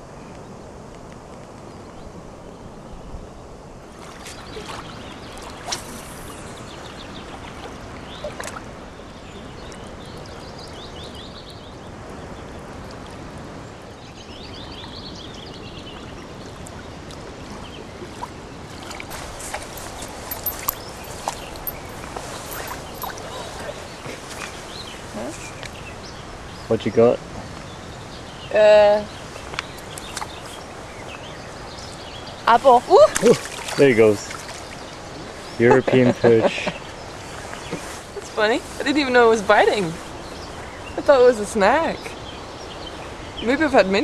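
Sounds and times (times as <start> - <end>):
outdoor background noise: 0.0 - 44.0
small bird singing: 19.1 - 26.9.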